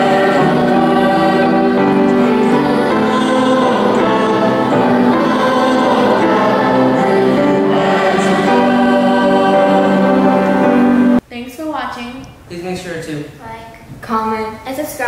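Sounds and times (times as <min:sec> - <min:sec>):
choir singing long held notes: 0:00.0 - 0:11.2.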